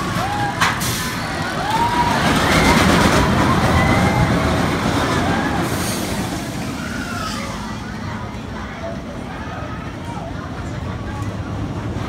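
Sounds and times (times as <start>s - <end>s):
roller coaster rumbling on track: 0.0s - 12.0s
riders screaming: 1.3s - 7.6s.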